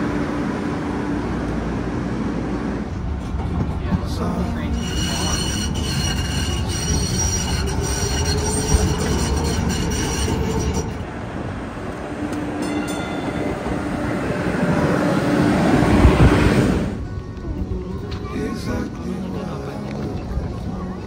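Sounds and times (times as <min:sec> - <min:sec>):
trolley rumble: 0:00.0 - 0:21.0
steel wheels squealing: 0:04.6 - 0:11.0.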